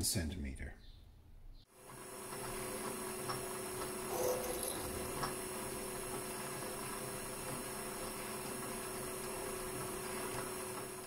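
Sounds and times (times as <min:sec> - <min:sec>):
lathe motor hum and whine: 0:01.9 - 0:11.0
drill scraping metal: 0:04.1 - 0:05.3.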